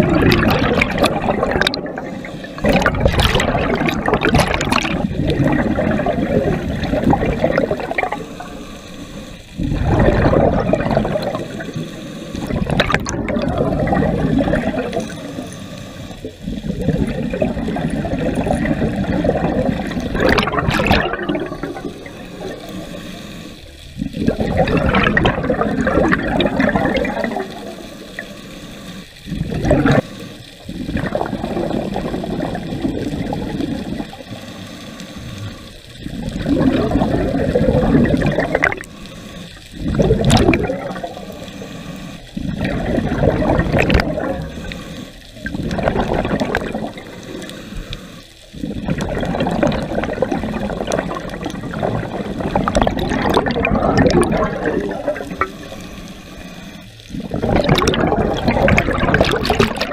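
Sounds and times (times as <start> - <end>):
exhaled bubbles rushing: 0.0 - 28.4, 29.2 - 34.6, 35.2 - 59.9
regulator inhale hiss: 2.0 - 2.8, 7.8 - 9.8, 11.1 - 12.6, 14.8 - 16.9, 21.4 - 24.3, 27.2 - 31.0, 32.2 - 40.2, 40.9 - 43.4, 44.1 - 45.8, 46.6 - 49.0, 55.2 - 57.3.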